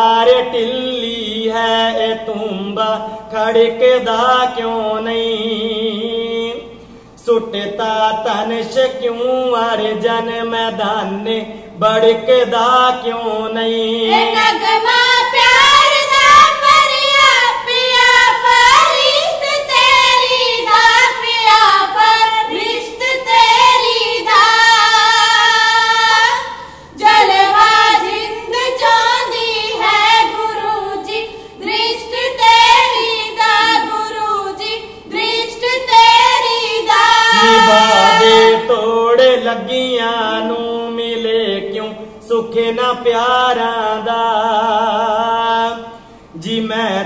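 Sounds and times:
women singing unaccompanied: 13.9 - 39.5
man singing: 37.3 - 47.0.

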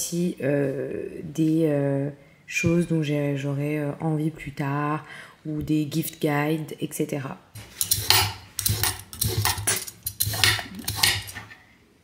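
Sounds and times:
knife cutting vegetables: 7.6 - 11.6.

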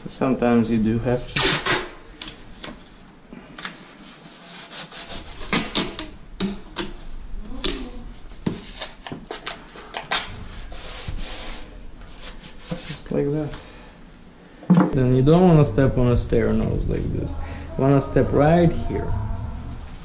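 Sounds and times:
tape ripping: 1.3 - 2.8
gloved hands rubbing tape: 3.6 - 6.2.

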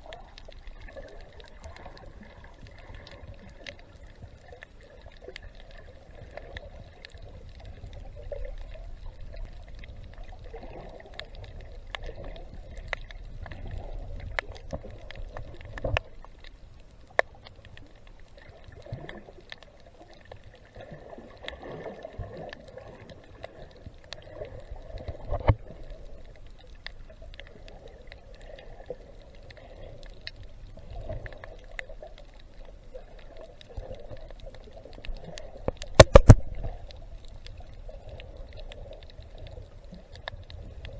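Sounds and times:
faint clicks: 0.0 - 40.9
gurgling water: 0.0 - 40.9
low underwater rumble: 0.0 - 40.9
sharp thumps: 36.0 - 36.5.

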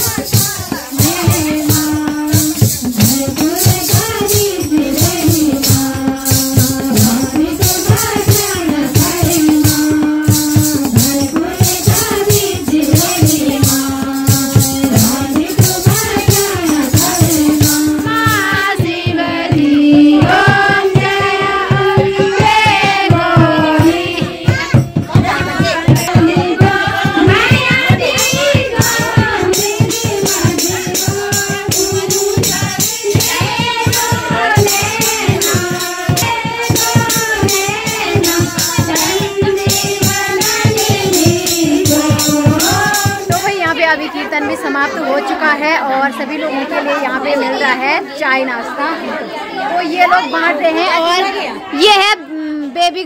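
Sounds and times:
hand percussion shaking: 0.0 - 45.8
voices singing: 0.0 - 52.5.

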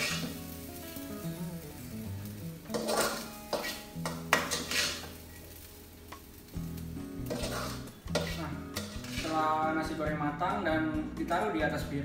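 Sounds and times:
spatula scraping wok: 0.0 - 0.7, 2.6 - 6.4, 7.2 - 10.0
light sizzle: 0.0 - 10.5.

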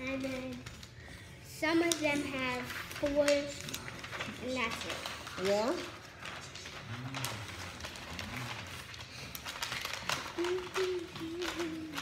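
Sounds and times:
faint low voice murmuring: 6.2 - 9.1, 10.1 - 12.0.

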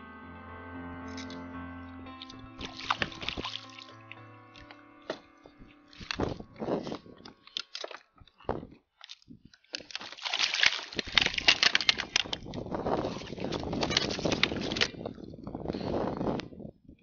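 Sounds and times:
background music: 0.0 - 8.6
fish slapping and rattling in kayak: 2.6 - 3.8, 7.5 - 15.2
short splashes: 2.6 - 4.0, 10.0 - 11.4.

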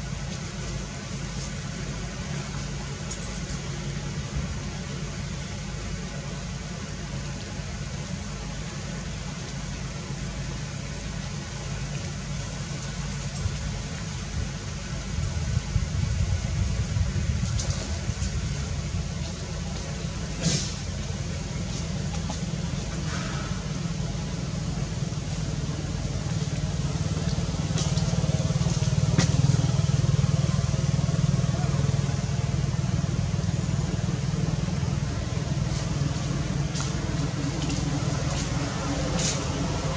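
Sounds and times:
engine running: 0.0 - 39.9
even hiss: 17.5 - 39.9.

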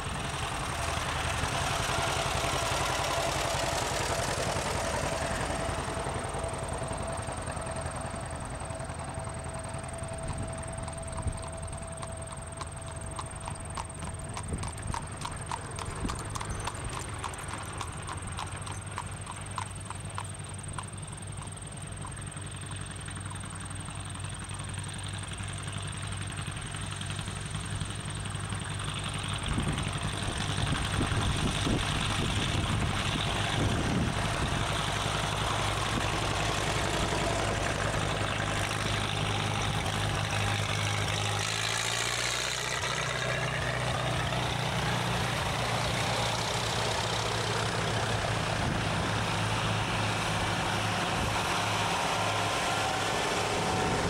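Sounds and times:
tractor engines passing: 0.0 - 54.0
regular clopping: 10.8 - 21.0.

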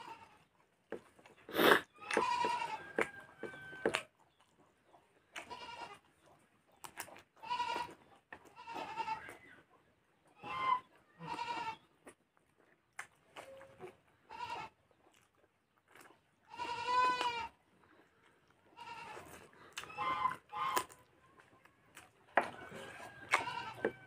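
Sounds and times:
goat bleating: 0.0 - 0.4, 1.5 - 3.9, 5.4 - 6.0, 7.4 - 9.4, 10.4 - 11.8, 14.3 - 14.8, 16.5 - 17.6, 18.6 - 20.9, 23.3 - 24.0.

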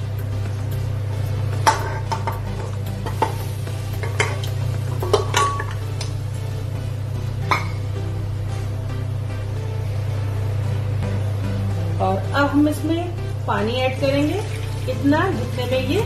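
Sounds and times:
bones clinking against a pot: 4.0 - 5.9.

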